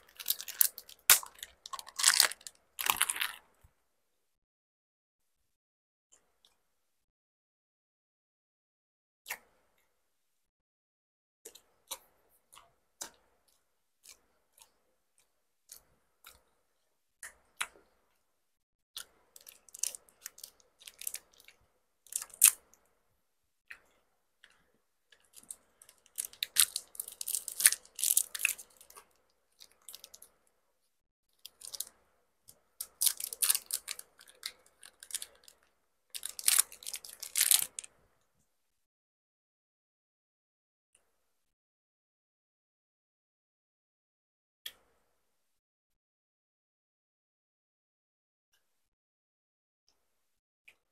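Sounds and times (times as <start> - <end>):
wrapper crinkling: 0.0 - 3.4, 25.4 - 28.9, 31.5 - 31.9, 32.8 - 35.6, 36.2 - 37.9.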